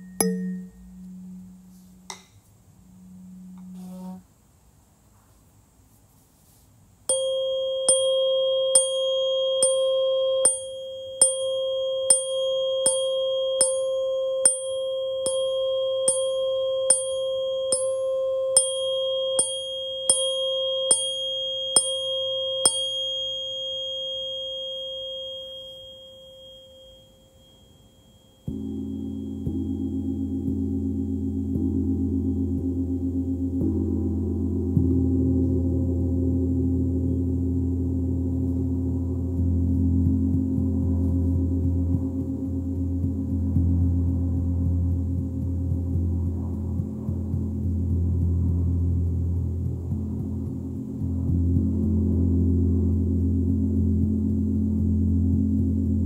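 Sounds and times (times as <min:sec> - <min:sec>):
gong: 0:00.0 - 0:04.2, 0:07.1 - 0:56.0
metallic ringing tone: 0:00.0 - 0:04.3, 0:07.1 - 0:53.6.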